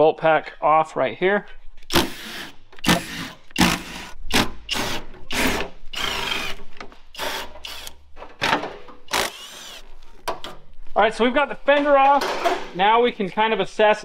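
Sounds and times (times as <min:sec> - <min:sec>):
power drill running in bursts: 0:09.1 - 0:09.8.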